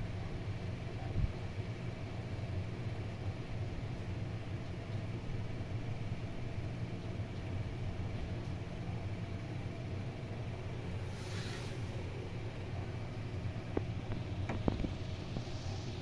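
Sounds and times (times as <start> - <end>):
high hissing: 11.0 - 12.1, 14.9 - 16.0.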